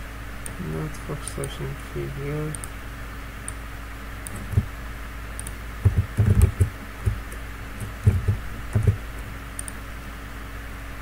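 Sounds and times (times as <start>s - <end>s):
computer keyboard keys tapping: 4.2s - 4.7s, 5.4s - 9.8s.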